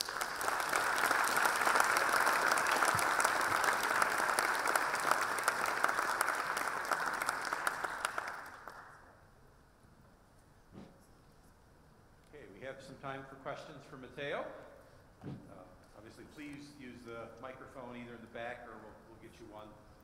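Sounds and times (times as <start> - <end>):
audience clapping: 0.0 - 9.1.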